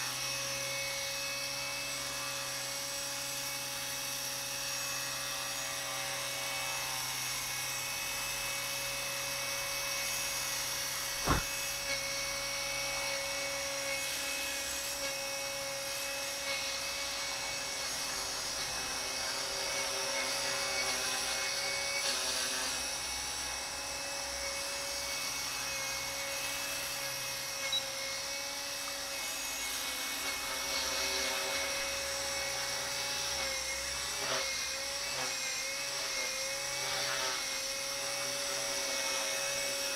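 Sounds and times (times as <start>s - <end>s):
rc helicopter motor whine: 0.0s - 39.9s
rotor buzz: 11.0s - 11.8s
sharp click: 11.2s - 11.5s.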